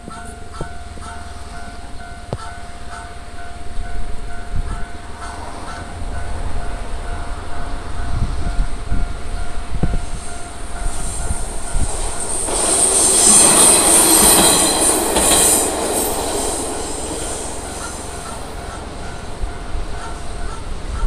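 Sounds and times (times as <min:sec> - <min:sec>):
level crossing warning bell: 0:00.0 - 0:21.0
train wheel noise: 0:00.0 - 0:21.0
high wheel squeal: 0:10.0 - 0:21.0.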